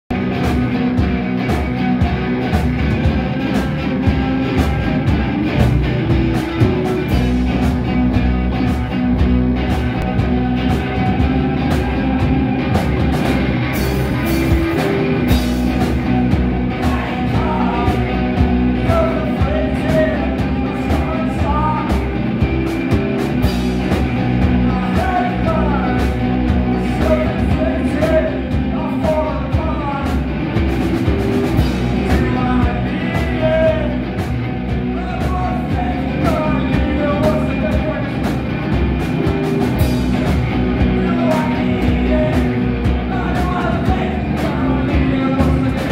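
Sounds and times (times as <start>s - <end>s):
loud electric guitars: 0.1s - 45.9s
steady drum beat: 0.1s - 45.9s
lead vocal singing: 10.0s - 30.3s, 31.4s - 38.4s, 39.8s - 45.9s.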